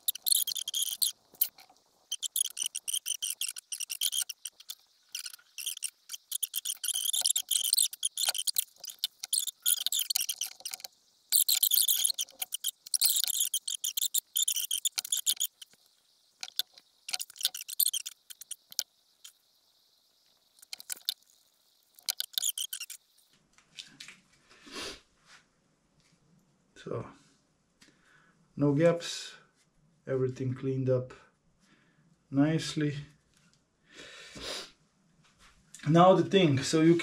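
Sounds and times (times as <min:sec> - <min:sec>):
stick scraping glue: 0:00.0 - 0:15.8, 0:16.4 - 0:18.8, 0:22.0 - 0:23.0.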